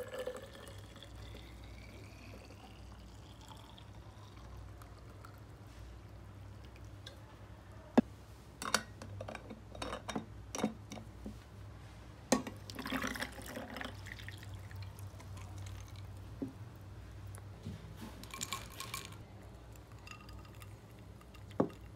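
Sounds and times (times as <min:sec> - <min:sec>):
tea pouring over ice: 0:00.0 - 0:05.6, 0:12.7 - 0:16.2, 0:18.2 - 0:21.9
ice clinking in glass: 0:18.2 - 0:19.2, 0:19.9 - 0:21.9.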